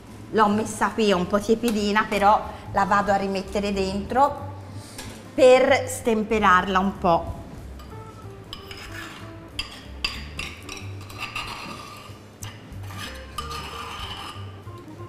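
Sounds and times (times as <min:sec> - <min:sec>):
background music: 0:00.0 - 0:15.0
sauce scraped from bowl: 0:08.6 - 0:09.9, 0:10.8 - 0:12.2, 0:12.8 - 0:14.6.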